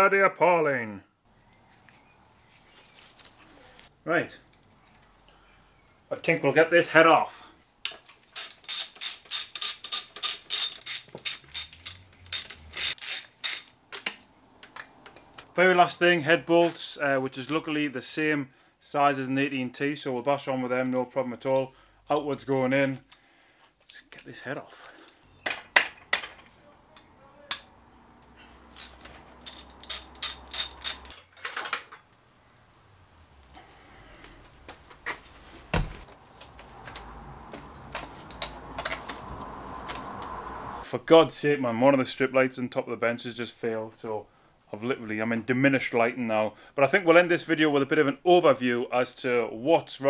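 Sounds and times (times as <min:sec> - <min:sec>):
hand ratchet clicking: 0:08.3 - 0:14.2, 0:28.8 - 0:31.2.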